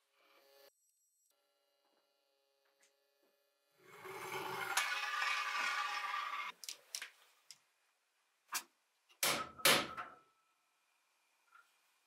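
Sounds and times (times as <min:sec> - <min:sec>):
rough scraping: 0:03.9 - 0:06.6.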